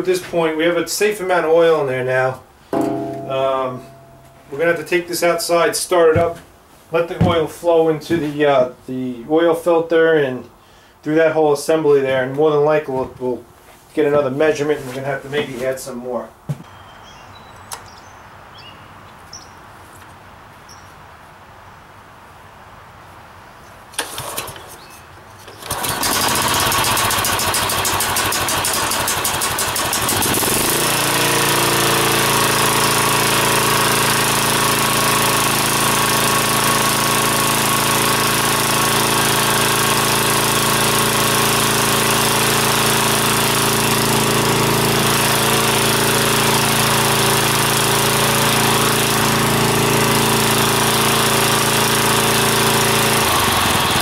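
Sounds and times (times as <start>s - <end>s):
mower engine starting and running: 23.9s - 54.0s.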